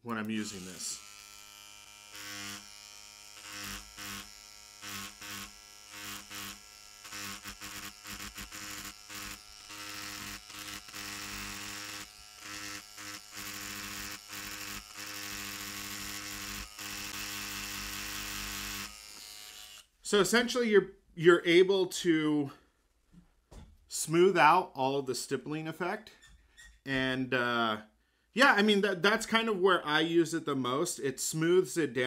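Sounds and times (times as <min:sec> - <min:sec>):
tattoo machine buzzing: 0:00.3 - 0:19.9.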